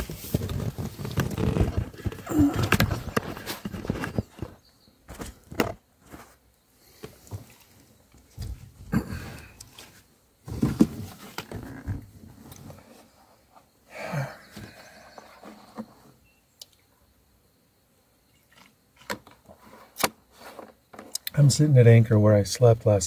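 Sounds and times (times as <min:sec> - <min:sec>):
camera handling rustling and scraping: 0:00.0 - 0:06.3.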